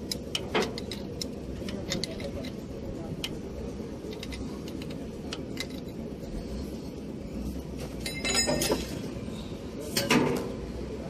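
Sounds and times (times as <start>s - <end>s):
wrench metallic clicks: 0.0s - 2.6s, 4.0s - 6.0s
low background rumble: 0.0s - 9.9s.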